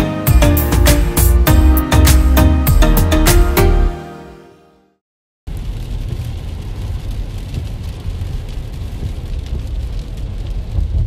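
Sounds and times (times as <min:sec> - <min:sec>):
car road rumble: 0:05.5 - 0:11.0
raindrops tapping on car: 0:05.5 - 0:11.0.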